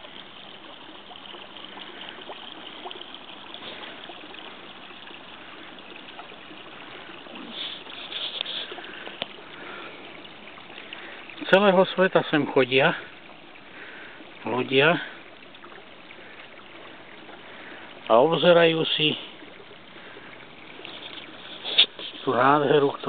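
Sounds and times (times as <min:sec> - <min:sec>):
running water trickling: 0:00.0 - 0:23.0
faint clicks: 0:08.2 - 0:09.4.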